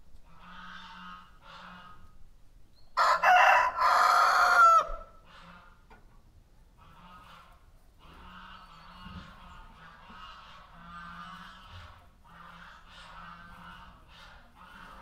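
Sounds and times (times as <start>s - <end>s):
farmyard fowl calling softly: 0.2s - 15.0s
rooster crowing: 3.0s - 5.2s.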